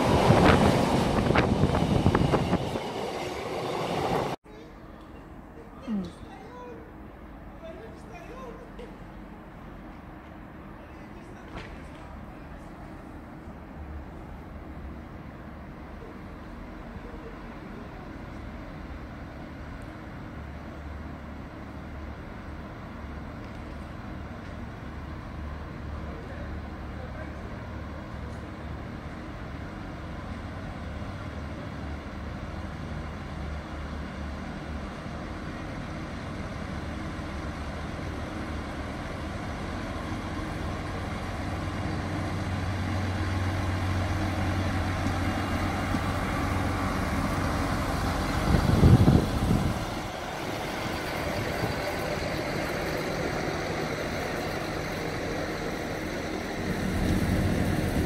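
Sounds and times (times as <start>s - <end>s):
locomotive rushing past: 0.0s - 4.4s, 12.0s - 58.0s
locomotive hum: 0.0s - 58.0s
wagons rumbling on track: 20.4s - 58.0s.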